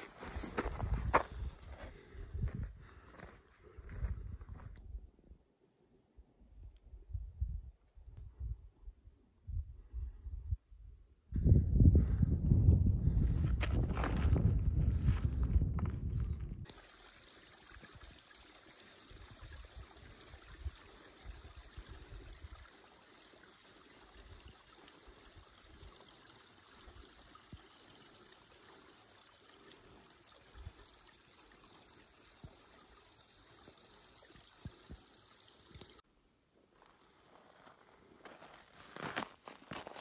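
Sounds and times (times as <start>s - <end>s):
running water rushing: 16.7s - 36.0s.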